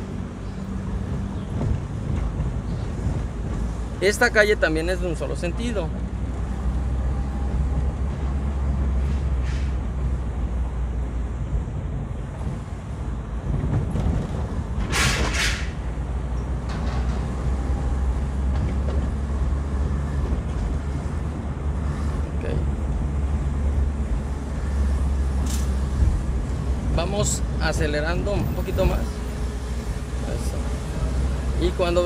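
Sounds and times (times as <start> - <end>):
car engine and road hum: 0.0 - 32.0
short sharp hiss: 14.9 - 15.8.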